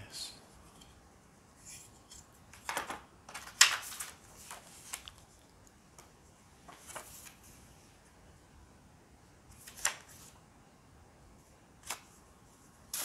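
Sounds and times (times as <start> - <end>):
paper booklet handled: 2.7 - 5.3, 6.0 - 7.5, 11.8 - 12.2.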